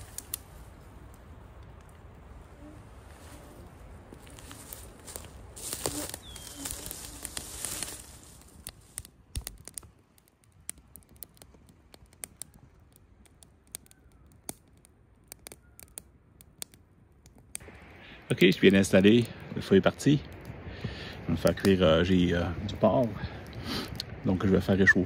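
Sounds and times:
fire snaps and pops: 0.0 - 2.5, 4.0 - 24.6
campfire crackling: 0.0 - 25.0
steady hiss: 17.6 - 24.0.

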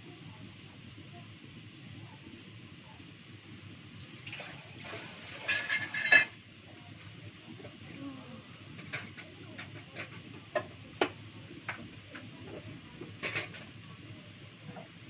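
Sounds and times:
running water hissing: 4.0 - 6.3.

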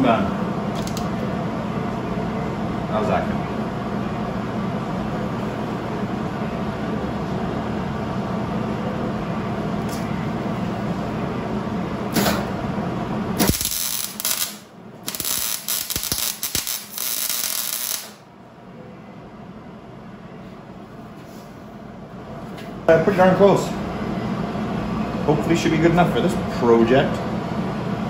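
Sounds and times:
steady machine hum: 0.0 - 28.0
welder arc crackling: 13.4 - 18.2.

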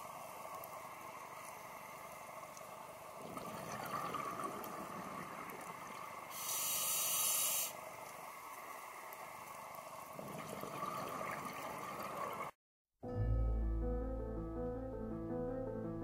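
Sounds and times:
exhaled bubbles gurgling: 3.0 - 6.8, 10.1 - 12.5
regulator hissing inhale: 6.3 - 7.8.

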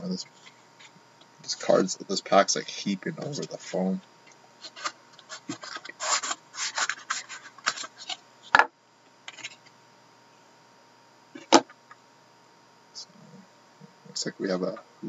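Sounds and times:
cardboard scraping and rubbing: 4.6 - 8.2.

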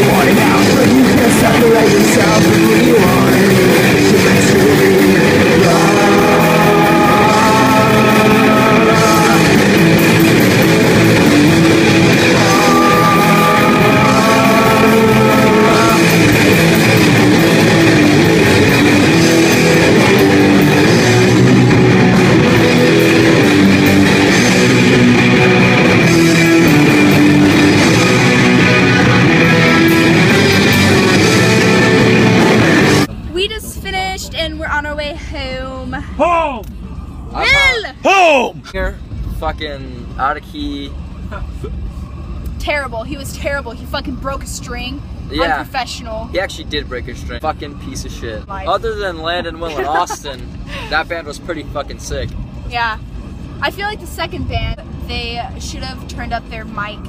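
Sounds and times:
live rock band playing: 0.0 - 33.1
person singing long notes: 1.0 - 9.8, 12.1 - 16.5.

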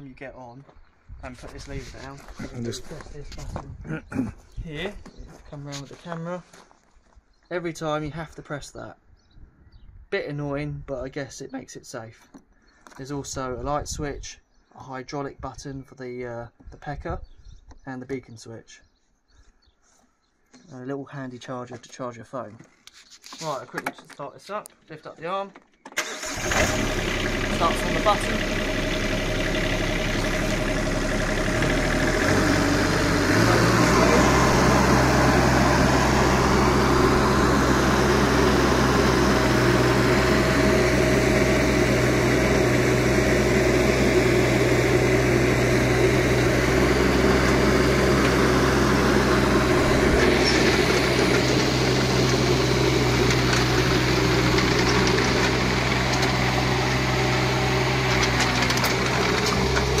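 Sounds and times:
mini digger diesel engine running: 26.0 - 60.0.

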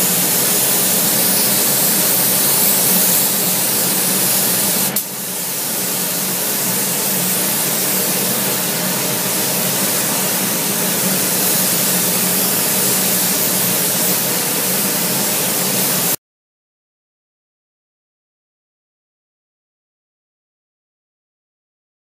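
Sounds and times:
spray gun hissing: 0.0 - 16.2.

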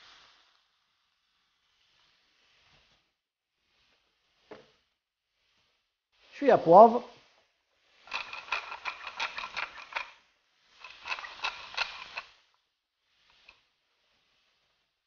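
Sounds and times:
pepper mill grinding clicks: 8.1 - 10.2, 10.8 - 12.3.

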